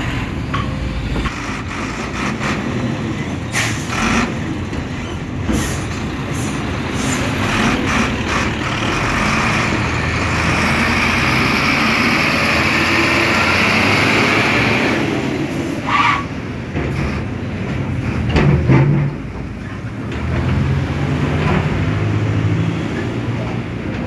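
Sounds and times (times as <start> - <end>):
diesel truck engine running: 0.0 - 18.4.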